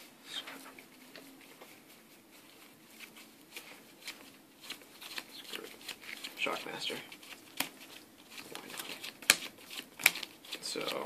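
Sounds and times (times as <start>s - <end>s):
cards being handled: 2.4s - 11.0s.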